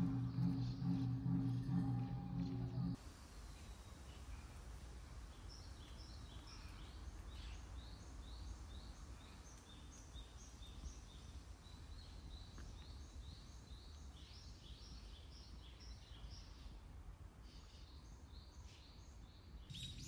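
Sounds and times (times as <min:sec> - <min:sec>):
low background rumble: 0:00.0 - 0:03.0
small birds chirping: 0:00.0 - 0:16.8, 0:17.6 - 0:20.0.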